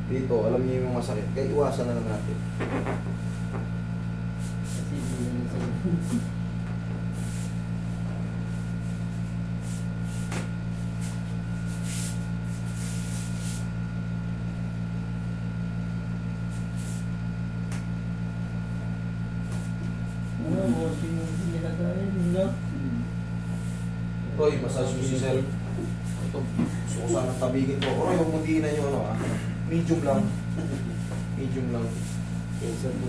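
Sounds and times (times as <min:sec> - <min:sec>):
low electrical hum: 0:00.0 - 0:33.0
thin high whine: 0:16.3 - 0:33.0.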